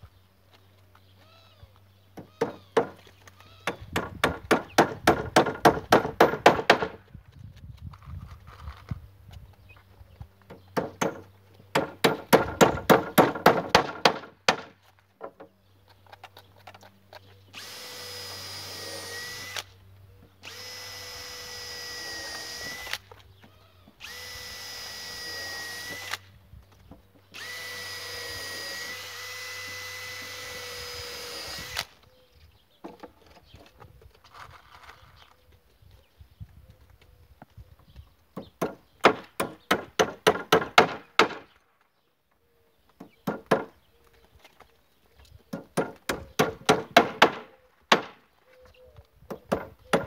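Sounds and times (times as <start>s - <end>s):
power drill drilling wood: 17.6s - 19.8s, 20.4s - 23.1s, 23.9s - 26.2s, 27.3s - 32.0s.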